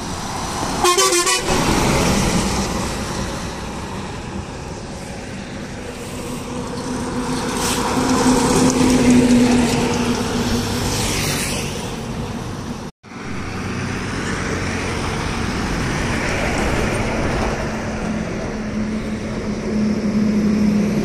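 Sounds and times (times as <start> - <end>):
bus driving past: 0.0 - 21.0
steady engine hum: 0.0 - 21.0
motorcycle passing: 5.3 - 12.6.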